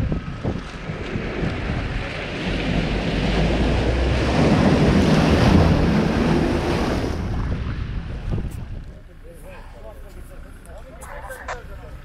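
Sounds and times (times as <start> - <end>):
wind on microphone: 0.0 - 9.0.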